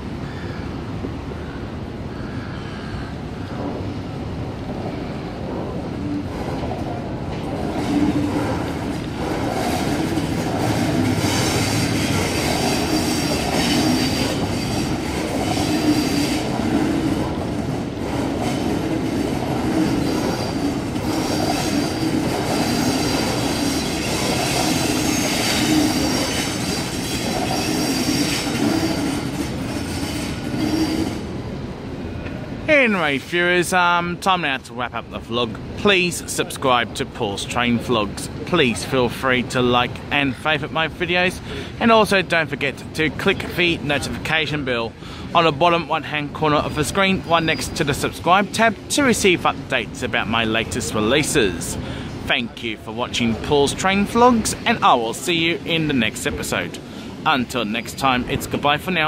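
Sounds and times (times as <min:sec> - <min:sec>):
train rolling noise: 0:00.0 - 0:59.0
steel wheels squealing: 0:09.3 - 0:17.2, 0:18.5 - 0:31.3, 0:47.3 - 0:47.9.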